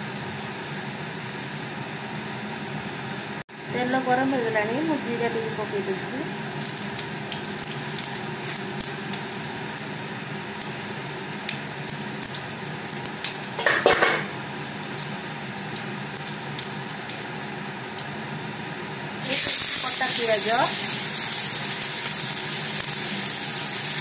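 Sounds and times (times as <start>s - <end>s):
seeds sizzling in hot oil: 4.9s - 24.0s.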